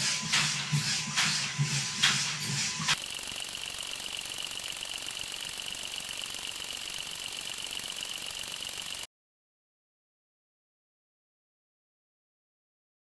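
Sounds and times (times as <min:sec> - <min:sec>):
high steady whine: 0:00.0 - 0:09.1
toy motor and gears rattling: 0:00.0 - 0:09.1.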